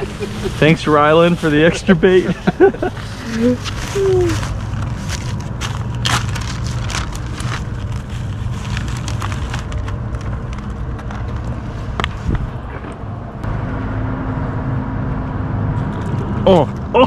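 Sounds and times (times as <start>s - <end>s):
road traffic rumble: 0.0s - 17.0s
plastic bag crinkling: 2.6s - 11.0s.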